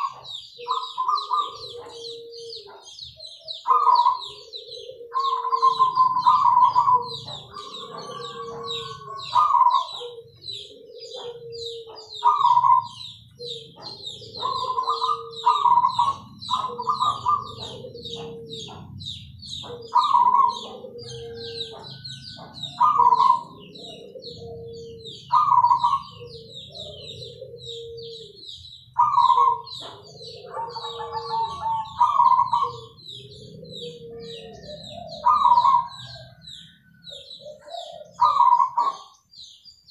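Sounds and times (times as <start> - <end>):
rapid high chirping: 0.0 - 24.0
doves cooing: 0.0 - 39.7.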